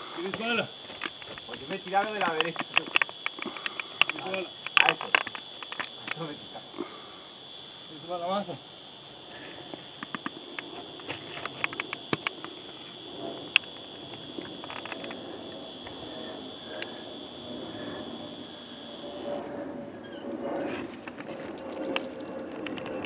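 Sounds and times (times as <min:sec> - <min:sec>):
high-pitched insect chorus: 0:00.0 - 0:23.0
sharp clicks and knocks: 0:00.2 - 0:06.3, 0:09.9 - 0:16.0.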